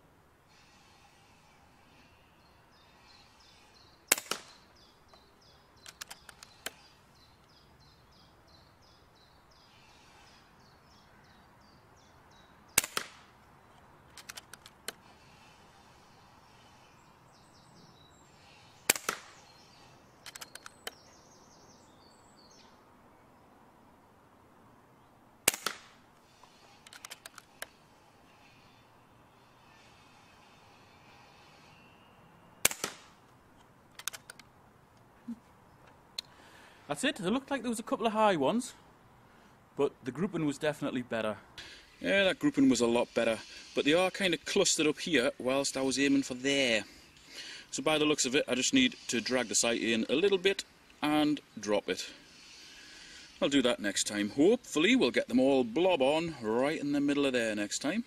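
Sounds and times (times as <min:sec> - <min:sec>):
air rifle shot crack: 0:04.1 - 0:04.6, 0:12.7 - 0:13.3, 0:18.9 - 0:19.4, 0:25.4 - 0:26.0, 0:32.6 - 0:33.2
rifle lever clicks: 0:05.8 - 0:06.8, 0:14.1 - 0:15.0, 0:20.2 - 0:21.0, 0:33.9 - 0:34.5.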